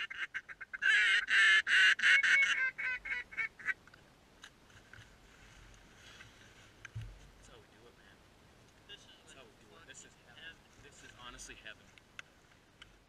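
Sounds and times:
waterfowl calling: 0:00.0 - 0:04.0.

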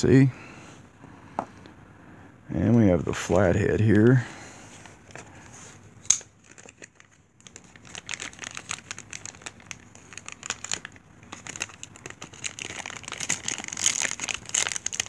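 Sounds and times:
plastic bag crinkling: 0:06.4 - 0:15.0.

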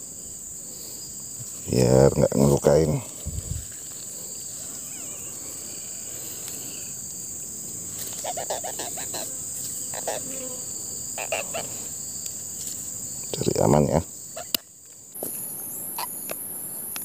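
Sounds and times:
crickets chirping: 0:00.0 - 0:17.0.

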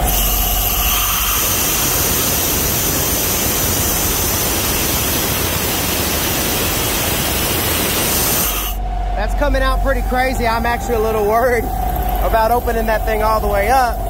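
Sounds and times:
compressed air hissing: 0:00.0 - 0:08.9.

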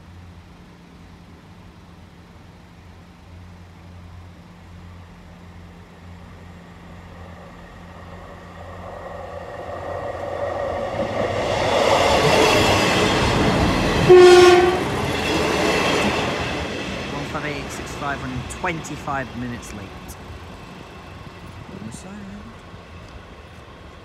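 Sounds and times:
train engine and wheel noise: 0:00.0 - 0:24.0
train horn blast: 0:14.0 - 0:15.2.

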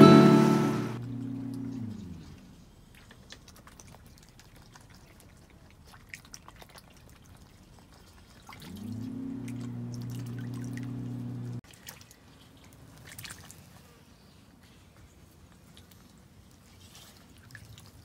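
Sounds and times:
duck dabbling in water: 0:02.9 - 0:13.7
low steady hum: 0:08.8 - 0:11.6.

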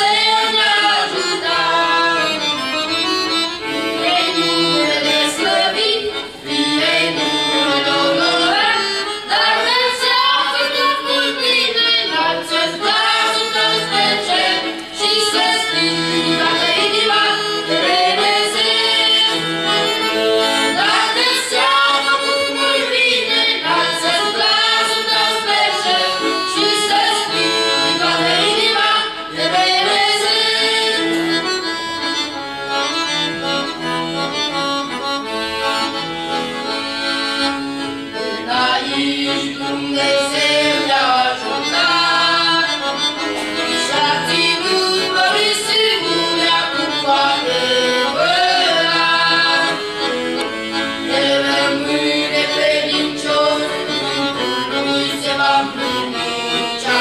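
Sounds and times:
boys singing: 0:00.0 - 0:02.7, 0:03.7 - 0:31.5, 0:38.1 - 0:50.0, 0:51.0 - 0:57.0
piano accordion playing: 0:00.0 - 0:57.0.

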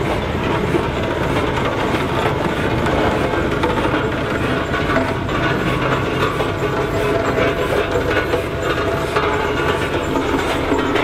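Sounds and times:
steam engine chuffing: 0:00.0 - 0:11.0
chain and gears clanking: 0:03.0 - 0:11.0.

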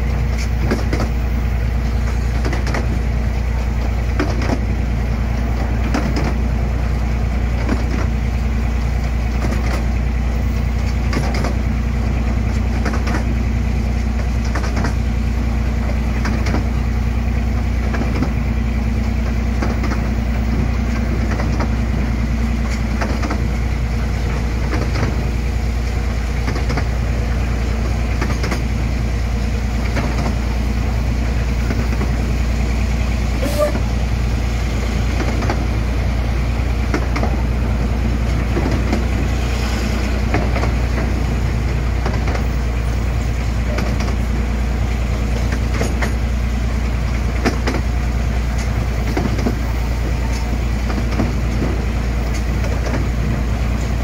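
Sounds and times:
diesel locomotive running: 0:00.0 - 0:54.0
carriage rattling along rails: 0:09.3 - 0:11.8, 0:14.0 - 0:15.1, 0:19.3 - 0:33.9, 0:40.0 - 0:54.0.

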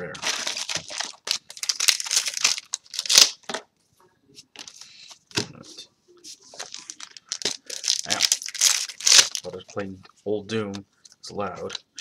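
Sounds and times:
foil wrappers crinkling: 0:00.2 - 0:03.4, 0:06.6 - 0:09.5.

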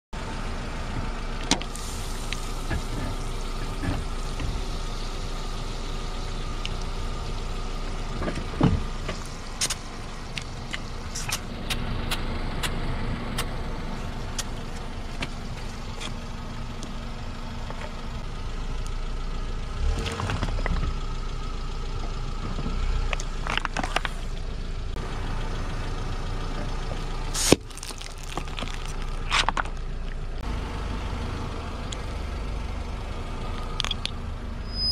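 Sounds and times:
car engine idling: 0:00.2 - 0:34.9
plastic cracking and popping: 0:27.5 - 0:29.8.

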